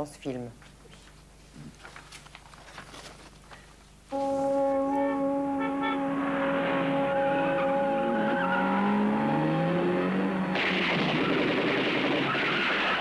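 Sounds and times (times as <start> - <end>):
held music chord: 4.1 - 10.5
car engines revving: 6.1 - 11.6.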